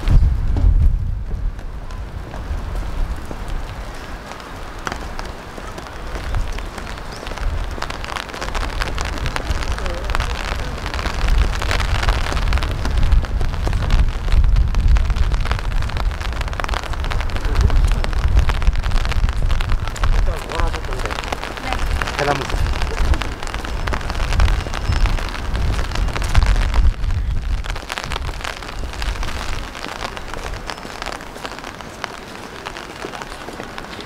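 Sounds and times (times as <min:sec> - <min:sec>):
low rumble: 0:00.0 - 0:03.8
rain pattering: 0:00.0 - 0:34.0.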